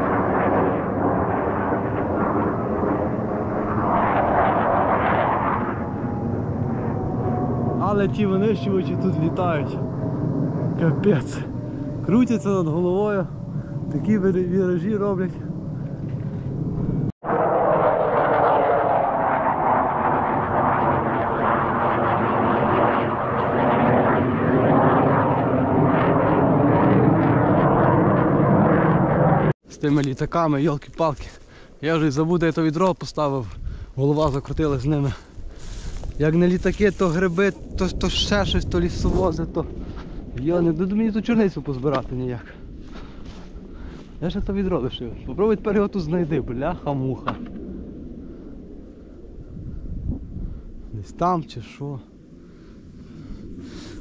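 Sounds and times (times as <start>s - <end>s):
jet roar overhead: 0.0s - 30.4s, 33.5s - 54.0s.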